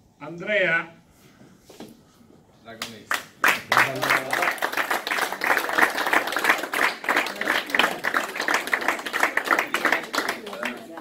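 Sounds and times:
people clapping: 2.8s - 11.0s.

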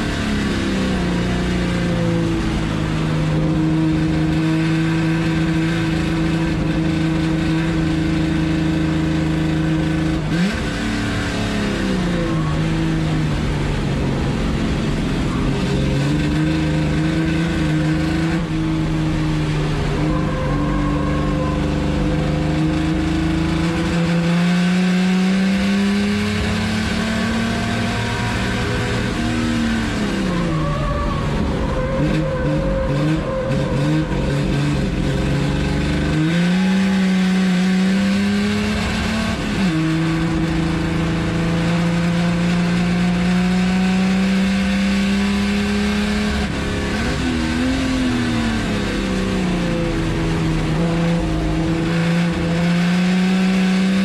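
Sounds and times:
race car engine revving: 0.0s - 54.0s.

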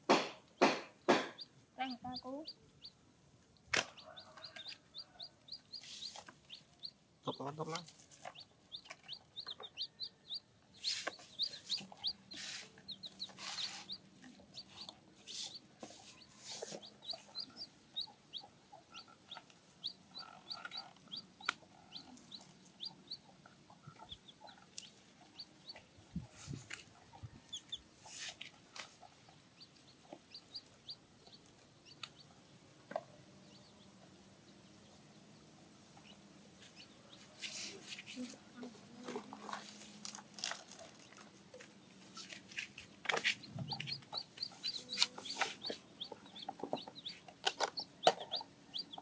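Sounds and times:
baby chicks peeping: 0.1s - 49.0s.

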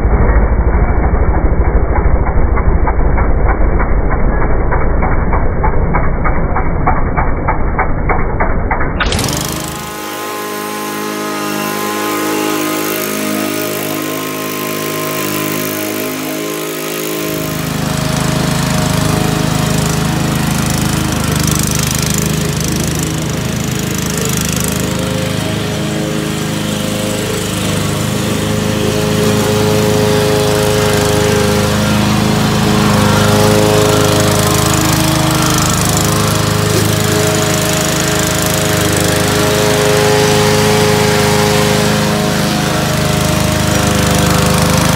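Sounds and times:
riding mower engine running: 9.0s - 44.9s.

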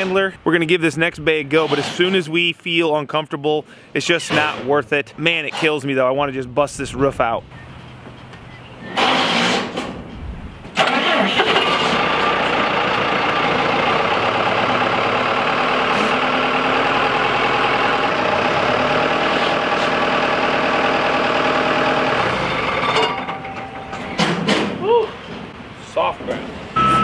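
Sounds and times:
diesel engine running: 10.7s - 24.2s, 26.8s - 27.0s.

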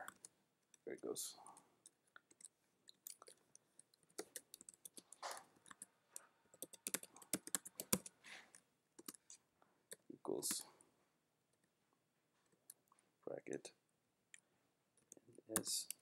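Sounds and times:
typing on computer keyboard: 1.8s - 8.2s, 9.0s - 9.2s.

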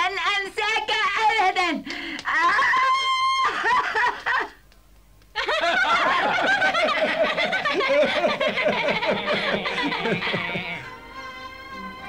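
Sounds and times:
cartoon characters laughing: 5.4s - 10.9s.

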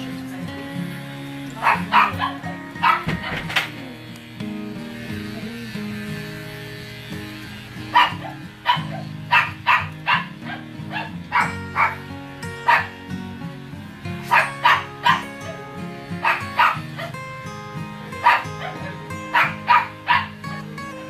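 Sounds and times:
background music: 0.0s - 21.0s
dog barking: 1.6s - 3.6s, 7.9s - 13.0s, 14.2s - 15.6s, 16.2s - 17.1s, 18.2s - 20.4s.

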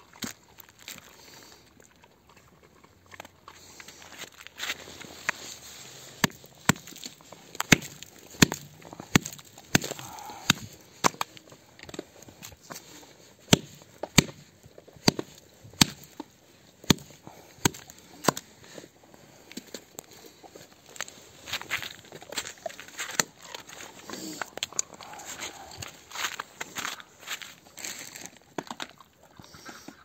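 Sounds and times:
footsteps crunching on icy snow: 3.5s - 13.9s, 19.5s - 28.5s.

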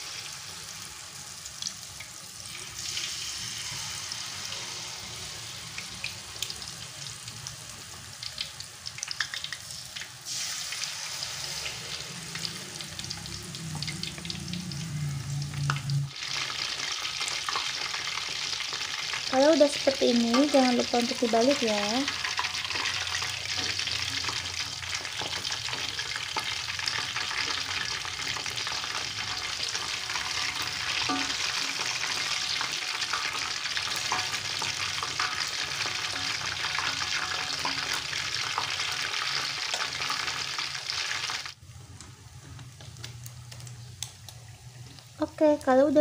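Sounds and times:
batter sizzling in hot oil: 0.0s - 46.0s
metal spatula tapping and scraping: 30.2s - 38.7s.

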